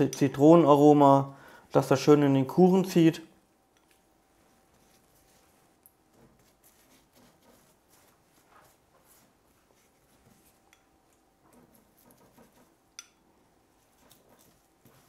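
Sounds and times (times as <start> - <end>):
pastry brush dabbing: 3.4 - 15.0.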